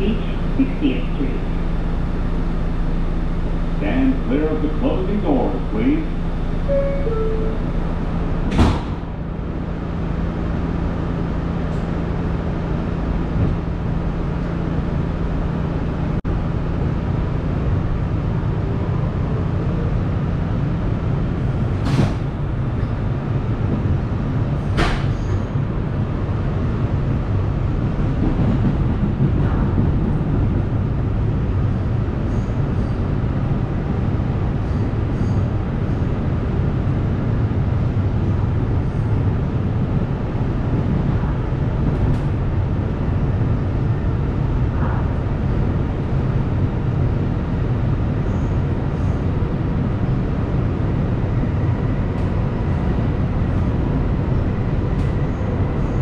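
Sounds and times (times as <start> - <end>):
train motor hum: 0.0 - 32.2
rumble from the rails: 0.0 - 56.0
subway doors shutting: 0.0 - 56.0.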